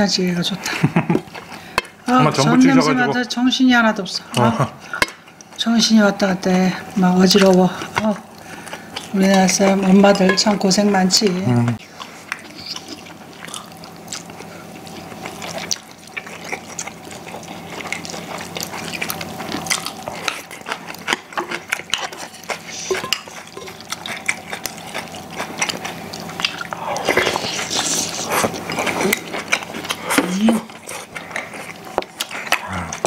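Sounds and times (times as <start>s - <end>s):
people chewing and slurping: 0.3s - 3.4s, 4.2s - 33.0s
utensils clicking on ceramic bowls: 9.0s - 10.8s, 22.9s - 23.8s.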